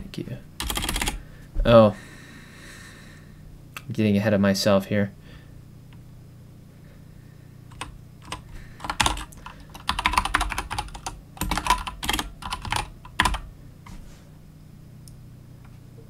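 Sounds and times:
typing on a keyboard: 0.6 - 1.2, 7.7 - 13.5.

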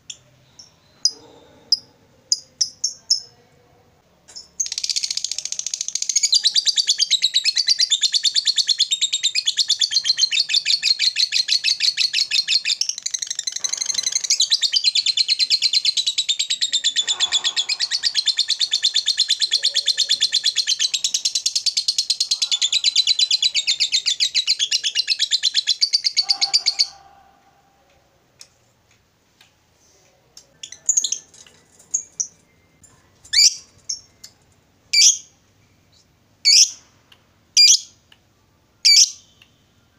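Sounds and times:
lovebird chattering: 4.6 - 27.2, 33.3 - 34.3, 34.9 - 35.3, 36.4 - 36.8, 37.6 - 38.0, 38.8 - 39.3.

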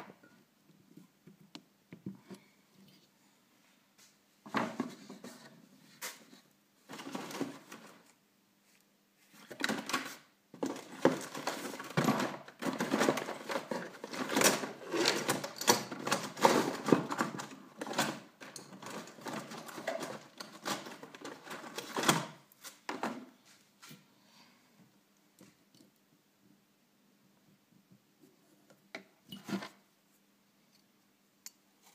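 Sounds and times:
small tools clicking and rattling: 10.6 - 22.1.

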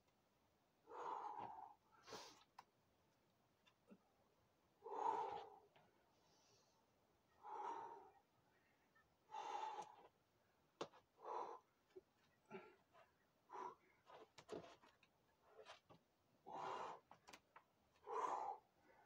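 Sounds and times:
forceful breaths of effort: 0.8 - 2.5, 4.8 - 6.8, 7.4 - 8.2, 9.3 - 10.1, 11.2 - 11.7, 12.5 - 14.3, 16.4 - 17.2, 18.0 - 19.0.

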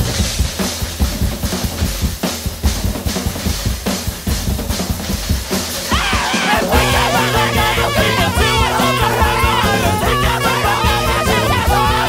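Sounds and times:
rock drum kit playing: 0.0 - 12.0.

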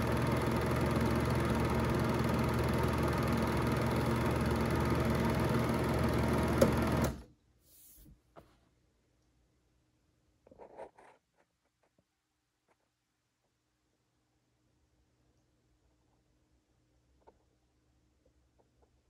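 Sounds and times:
film projector running: 0.0 - 7.3.

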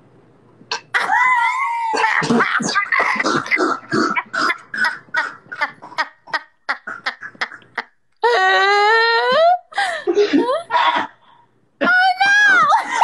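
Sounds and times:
woman wailing cry: 1.0 - 2.7, 11.8 - 13.0
woman laughing hard: 1.0 - 8.4, 12.3 - 13.0.

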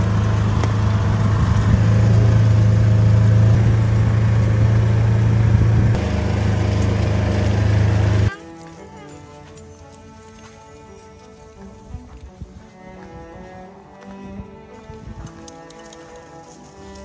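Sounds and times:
vehicle engine running: 0.0 - 11.8.

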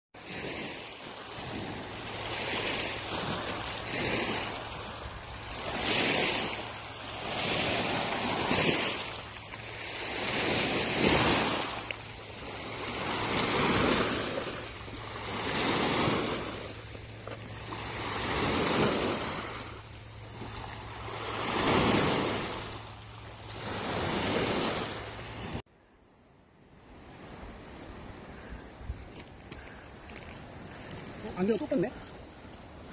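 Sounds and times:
sea waves washing in: 0.2 - 25.6.

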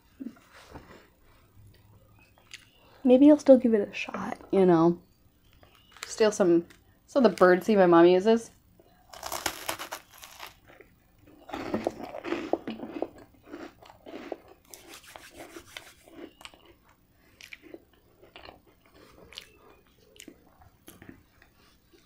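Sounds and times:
crunching toasted bread: 9.1 - 21.2.

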